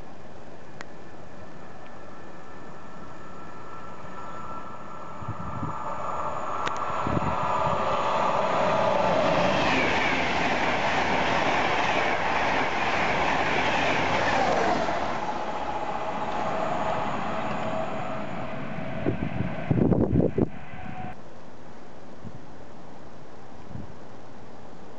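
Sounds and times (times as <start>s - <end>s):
train whine falling in pitch: 1.5s - 21.2s
train wheels rushing on rail: 2.1s - 21.2s.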